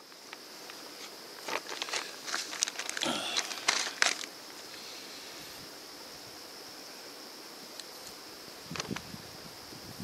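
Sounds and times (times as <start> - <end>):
insect drone: 0.0 - 10.0
plastic bag crinkling: 1.4 - 4.3.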